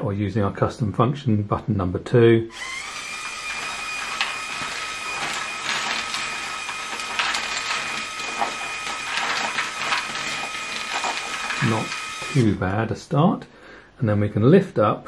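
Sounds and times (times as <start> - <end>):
toy motors whining: 2.5 - 12.6
plastic bricks clattering: 3.3 - 12.5.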